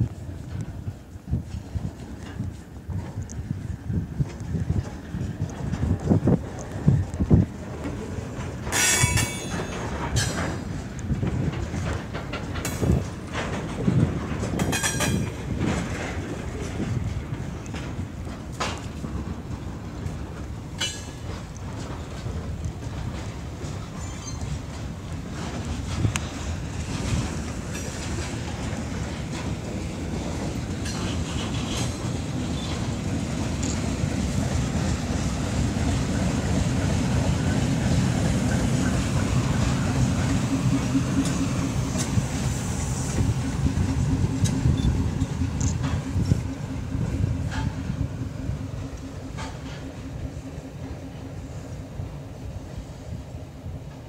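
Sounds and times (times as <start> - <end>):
train wheels knocking over rail joints: 7.3 - 51.5
diesel engine rumbling: 15.3 - 53.8
high wheel squeals: 23.8 - 24.6.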